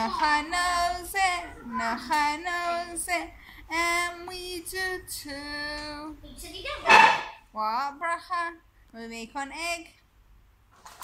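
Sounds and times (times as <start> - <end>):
girl singing: 0.0 - 6.8.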